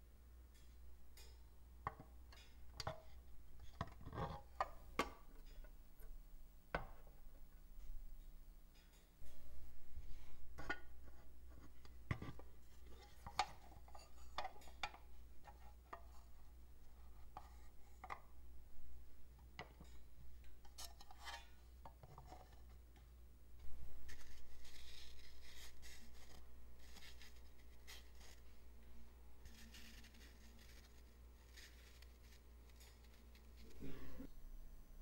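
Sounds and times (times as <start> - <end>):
scratchy hiss: 23.6 - 34.4.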